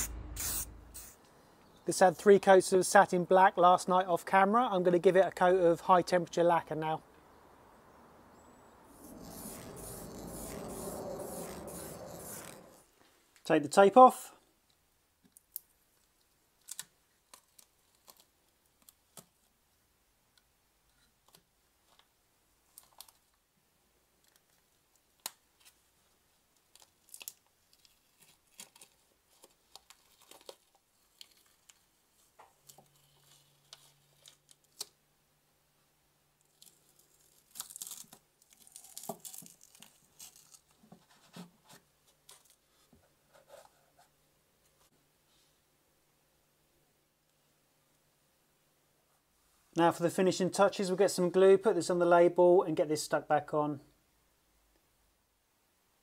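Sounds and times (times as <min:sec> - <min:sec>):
tape peeling and tearing: 0:00.0 - 0:01.2, 0:08.9 - 0:12.9, 0:16.6 - 0:19.3, 0:26.6 - 0:35.0, 0:36.4 - 0:41.2.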